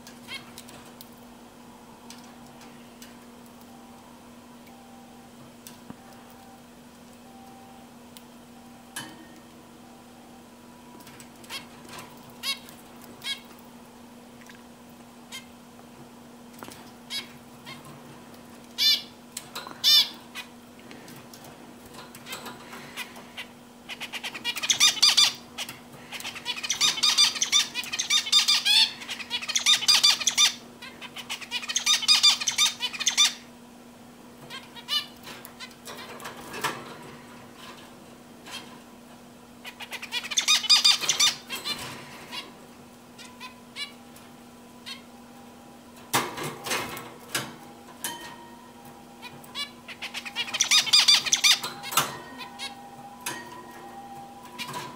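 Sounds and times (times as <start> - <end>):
faint steady hum: 0.0 - 54.9
finch calls and song: 22.8 - 33.4, 39.6 - 42.4, 49.2 - 52.8.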